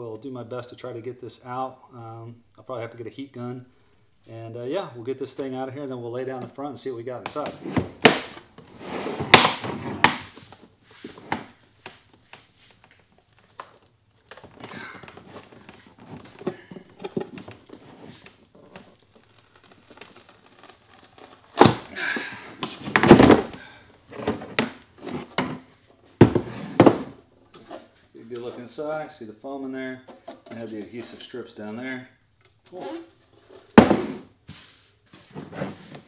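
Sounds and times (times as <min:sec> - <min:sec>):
plastic and foam rustling: 0:06.4 - 0:28.8.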